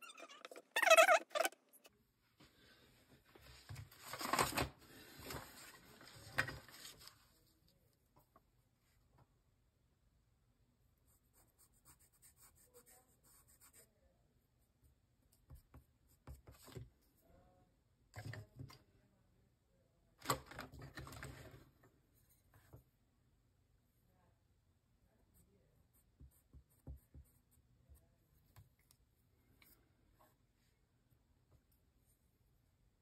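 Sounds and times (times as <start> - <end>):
pencil scratching on paper: 11.1 - 13.9.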